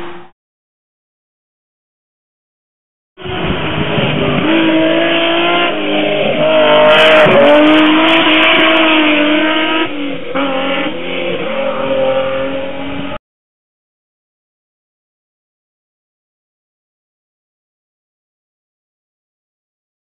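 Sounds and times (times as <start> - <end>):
rally car engine revving: 3.2 - 13.2.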